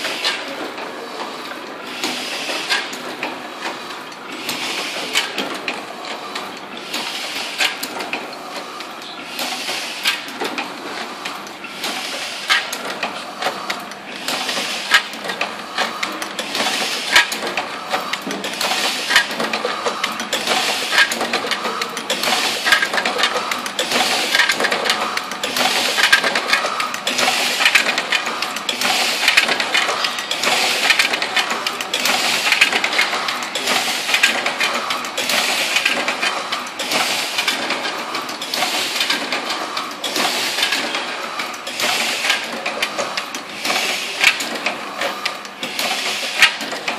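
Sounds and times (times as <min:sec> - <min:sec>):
printing press clattering: 0:00.0 - 0:46.9.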